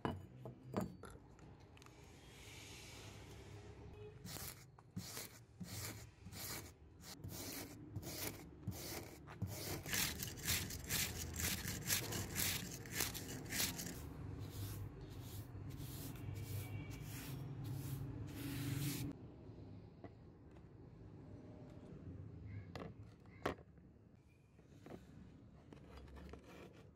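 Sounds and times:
wire brush scrubbing rusty metal: 4.3s - 19.1s.

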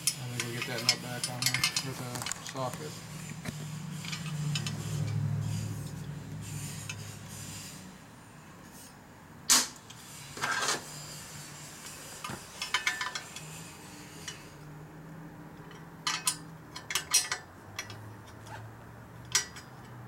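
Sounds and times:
metal tool clinking on metal: 15.6s - 18.0s.

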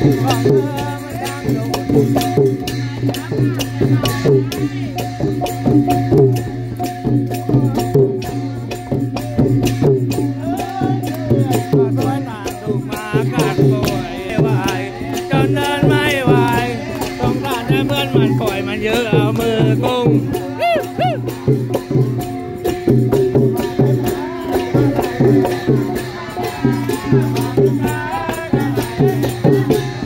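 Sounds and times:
long drums playing a driving beat: 0.0s - 30.0s
small cymbals clashing: 0.0s - 30.0s
voices singing and whooping: 10.3s - 22.2s, 23.6s - 30.0s.

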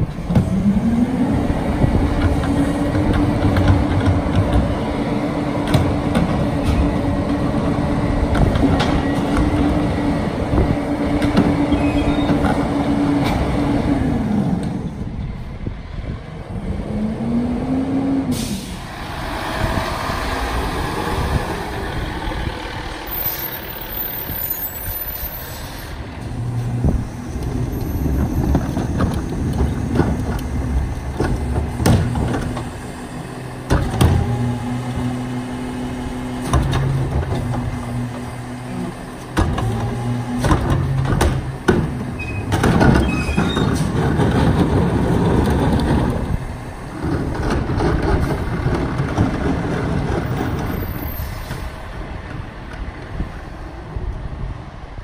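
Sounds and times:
air brakes hissing: 18.3s - 21.4s, 23.0s - 26.1s, 50.8s - 51.9s
bangs of carts tipping: 27.5s - 32.9s, 39.2s - 51.7s.

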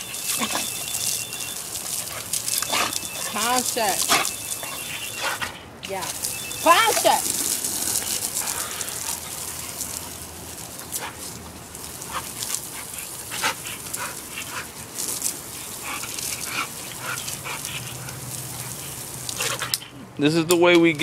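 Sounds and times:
dog yipping and barking: 0.0s - 5.6s
water jet hissing: 0.0s - 19.7s.

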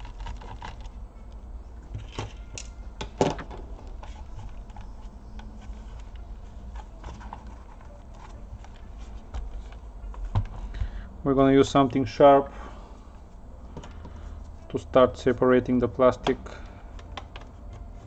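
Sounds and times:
hands clicking on laptop plastic: 0.0s - 1.4s, 16.2s - 17.9s.

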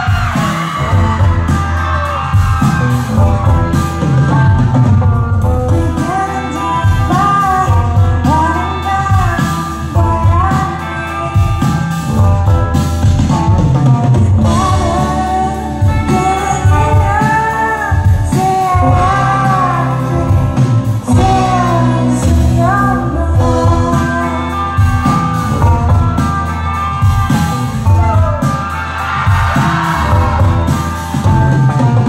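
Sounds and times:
indie rock band with singing: 0.0s - 32.0s.

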